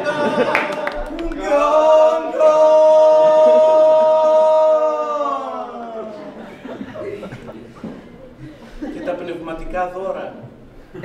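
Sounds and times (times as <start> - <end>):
men chanting unaccompanied: 0.0 - 6.4.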